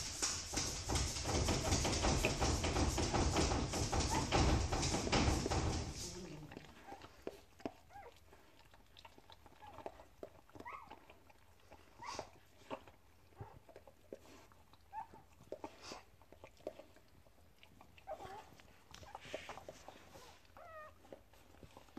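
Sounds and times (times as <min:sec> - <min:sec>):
dog licking puppy: 0:05.0 - 0:21.9.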